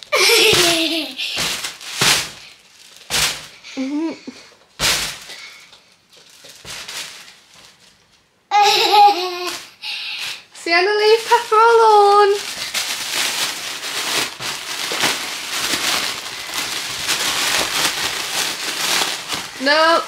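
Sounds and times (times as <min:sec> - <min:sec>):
girl laughing and giggling: 0:00.0 - 0:01.4, 0:03.7 - 0:04.5, 0:08.5 - 0:09.7.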